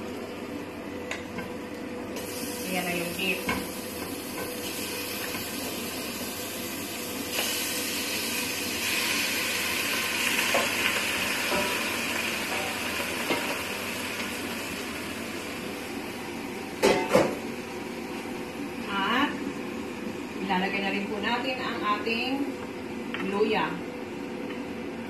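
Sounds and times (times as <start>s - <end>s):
meat sizzling in hot oil: 2.2s - 15.8s.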